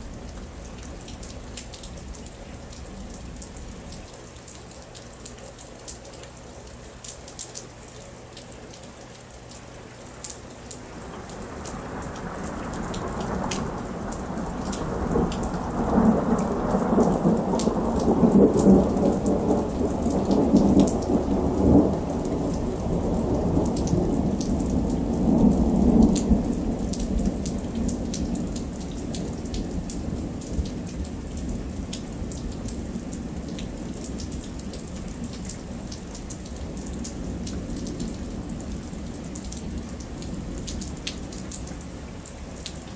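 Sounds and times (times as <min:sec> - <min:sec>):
small drips: 0:00.0 - 0:18.8
rain falling on pavement: 0:00.0 - 0:42.9
thunder rumbling: 0:11.0 - 0:31.8.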